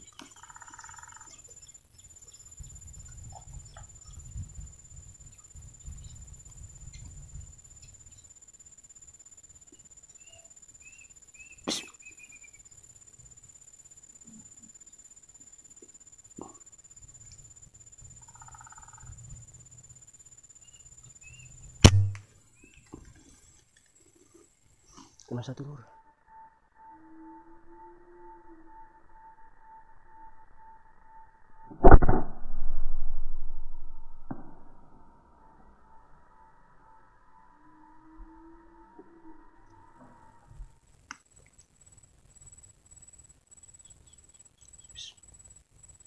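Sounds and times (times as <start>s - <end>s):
faint high whine: 0.0s - 46.0s
steady high whine: 19.3s - 22.2s, 28.8s - 37.6s
air rifle shot: 21.8s - 22.2s, 31.8s - 33.2s
low rumble on microphone: 31.7s - 35.3s.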